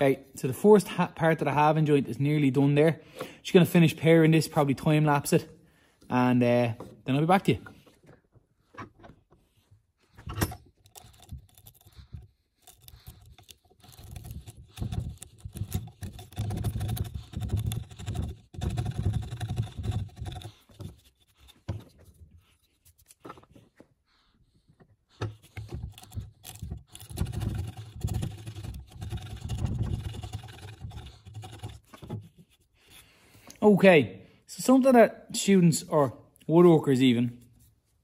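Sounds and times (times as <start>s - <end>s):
chisel paring wood: 10.2s - 22.0s, 25.2s - 32.4s.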